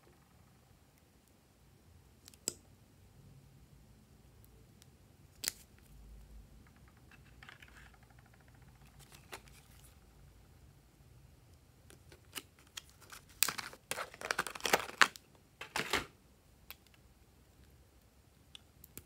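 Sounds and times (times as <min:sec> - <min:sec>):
blister pack rustling: 0:12.2 - 0:16.1.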